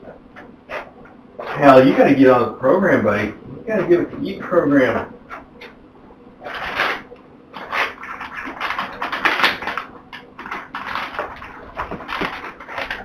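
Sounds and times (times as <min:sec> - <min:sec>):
plastic pouch crinkling: 0:07.6 - 0:13.0.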